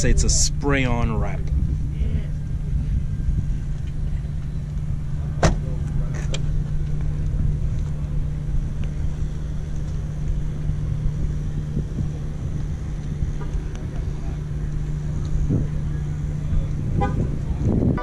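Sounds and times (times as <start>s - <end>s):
steady low hum: 0.0s - 18.0s
car door shutting: 5.4s - 6.5s.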